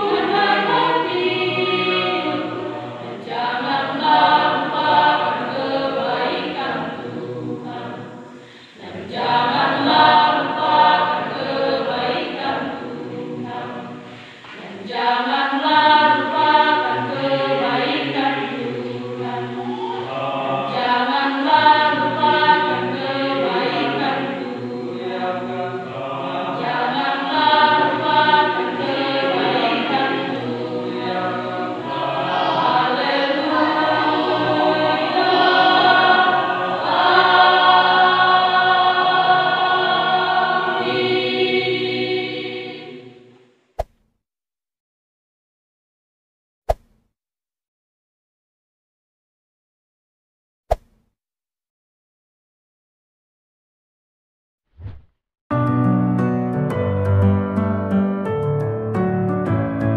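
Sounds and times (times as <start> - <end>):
church choir singing: 0.0 - 43.4.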